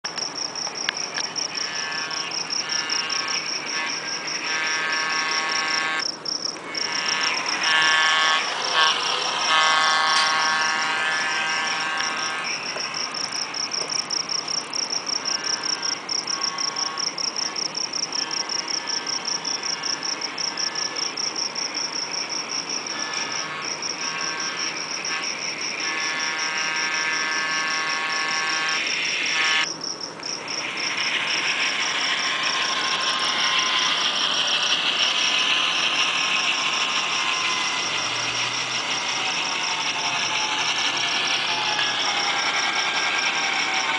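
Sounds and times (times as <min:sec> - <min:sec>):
rapid high-pitched pulsing tone: 0:00.1 - 0:09.5, 0:30.4 - 0:43.9.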